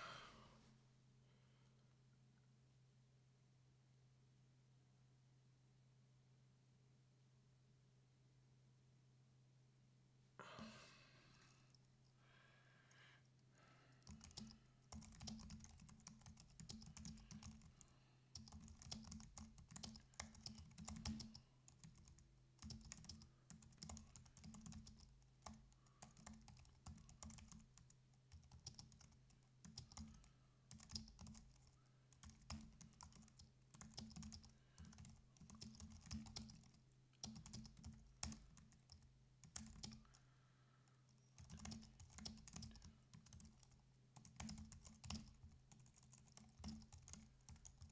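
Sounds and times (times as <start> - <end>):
faint steady low hum: 0.0 - 47.9
typing on computer keyboard: 14.0 - 40.2, 41.1 - 47.9.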